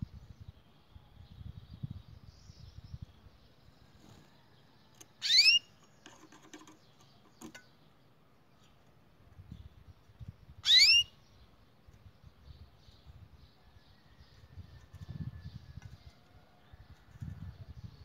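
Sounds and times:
canary call notes: 5.2 - 5.7, 10.6 - 11.1.

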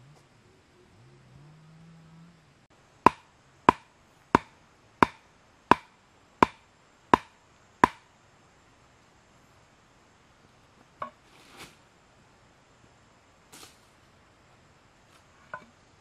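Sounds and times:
tool striking wood: 3.0 - 8.1.

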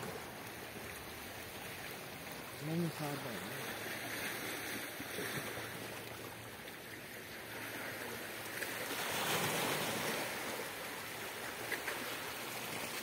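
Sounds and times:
waves washing against rocky shore: 7.6 - 13.0.

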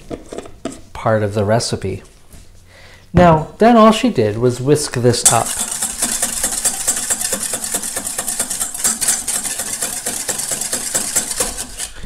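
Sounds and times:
wire whisk rattling in metal bowl: 5.3 - 12.0.

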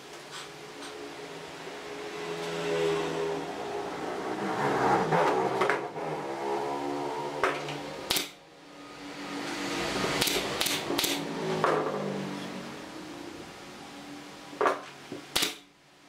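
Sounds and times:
pneumatic nailer firing: 8.1 - 8.4, 10.2 - 11.9, 15.3 - 15.7.

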